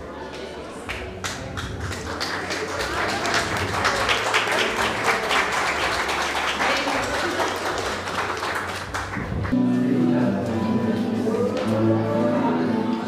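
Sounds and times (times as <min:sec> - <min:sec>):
audience clapping: 0:00.8 - 0:09.6
music with held notes: 0:08.9 - 0:13.0.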